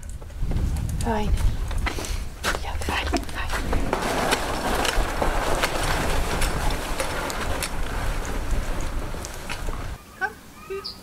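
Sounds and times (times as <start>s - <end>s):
footsteps crunching on snow: 1.4s - 10.0s.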